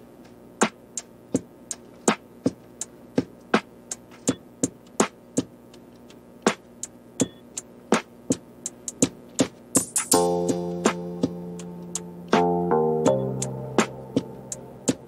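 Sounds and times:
electronic beat: 0:00.4 - 0:15.0
faint sustained backing: 0:10.1 - 0:15.0.

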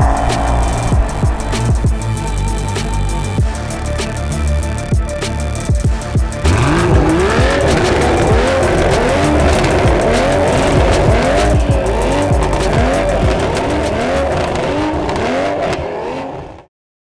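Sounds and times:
car engines revving: 0:00.0 - 0:16.6
exhaust pops and crackles: 0:06.4 - 0:16.6.

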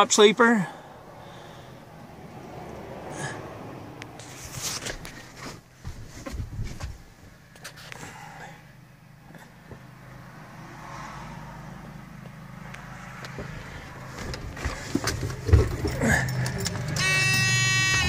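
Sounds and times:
diesel engine humming: 0:00.0 - 0:18.0
knocks and clatters: 0:13.2 - 0:18.0.

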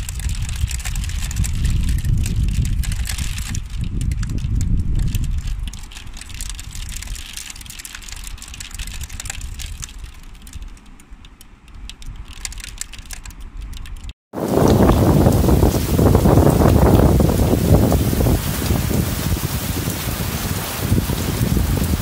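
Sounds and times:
wind rumble on microphone: 0:00.0 - 0:22.0
hailstones striking hard surfaces: 0:14.4 - 0:22.0.

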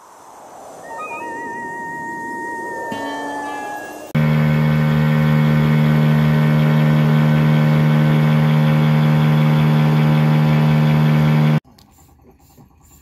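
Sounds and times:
low-pitched drone: 0:00.8 - 0:11.6.

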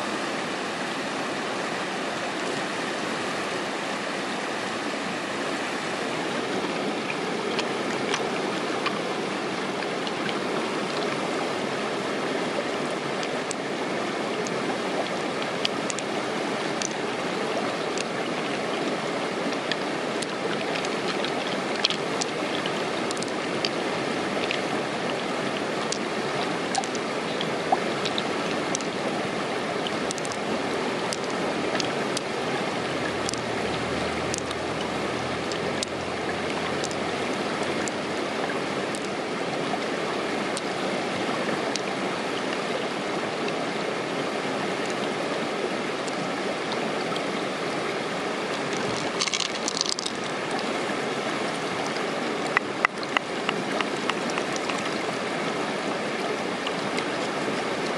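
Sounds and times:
running water rushing: 0:00.0 - 0:57.9
light clicks of pearls and shell: 0:48.7 - 0:50.3.

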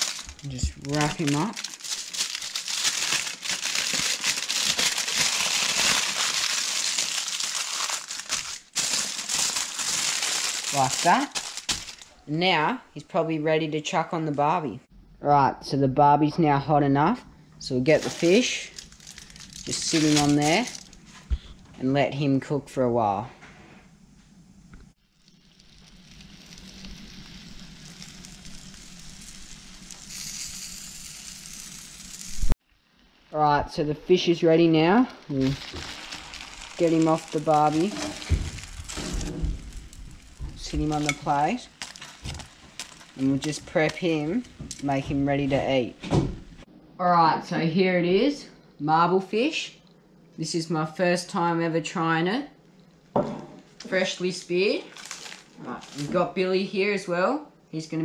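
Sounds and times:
aluminium foil crinkling: 0:00.0 - 0:12.2, 0:17.9 - 0:21.2, 0:25.0 - 0:32.5, 0:34.9 - 0:45.0, 0:53.7 - 0:56.4
fish sizzling on a hotplate: 0:25.0 - 0:32.5, 0:35.4 - 0:44.5.

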